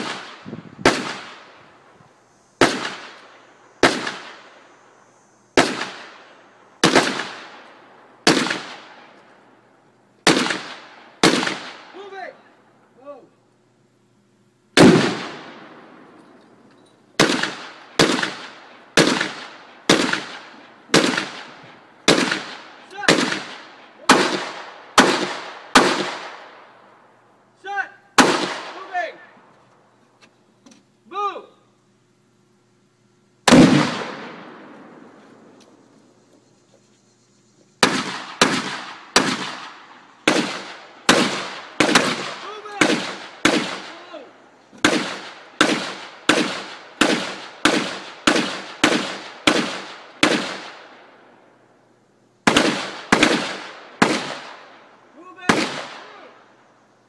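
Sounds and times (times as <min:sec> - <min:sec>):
gunshots with echo: 0:06.8 - 0:07.6, 0:14.8 - 0:15.8, 0:17.2 - 0:26.5, 0:33.5 - 0:34.7, 0:37.8 - 0:44.1, 0:44.8 - 0:50.8, 0:52.5 - 0:54.6
explosive blast with echo: 0:14.8 - 0:16.0, 0:33.5 - 0:35.1.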